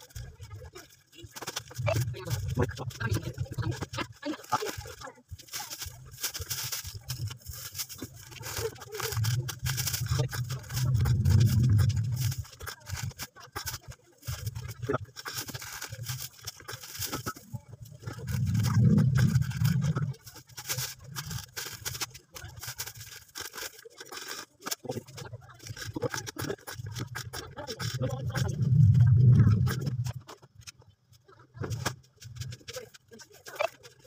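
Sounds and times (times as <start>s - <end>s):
plastic bags rustling: 0.0s - 30.7s
low rumbles: 9.3s - 12.6s, 17.5s - 21.5s, 27.8s - 30.5s.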